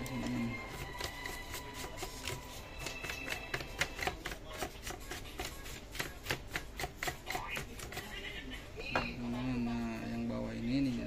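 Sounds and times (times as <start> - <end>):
paintbrush scrubbing plastic: 0.0 - 8.2.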